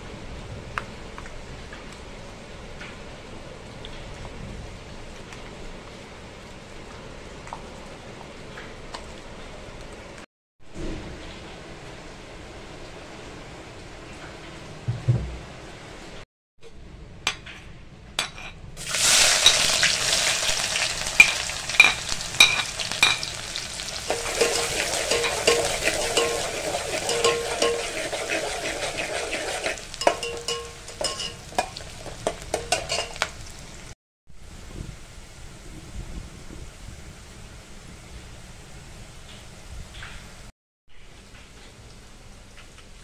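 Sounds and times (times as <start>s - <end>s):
onions sizzling in oil: 18.8s - 34.0s
metal skimmer scraping pot: 24.0s - 33.2s.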